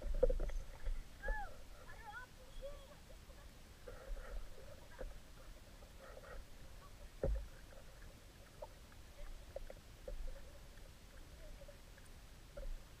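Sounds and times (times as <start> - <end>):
small water sounds: 0.0 - 13.0.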